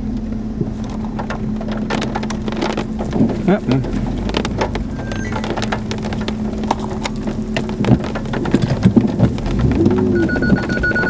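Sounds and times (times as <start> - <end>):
low rumble: 0.0 - 11.0
rain tapping on vehicle: 0.1 - 11.0
high electronic tone: 10.1 - 11.0.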